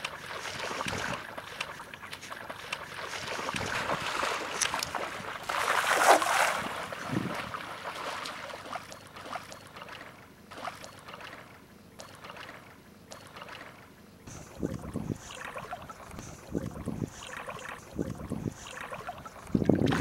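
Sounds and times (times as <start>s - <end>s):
wading splashes: 0.0s - 20.0s
net drawn through water: 2.2s - 8.8s
net splashing onto water: 2.4s - 9.4s.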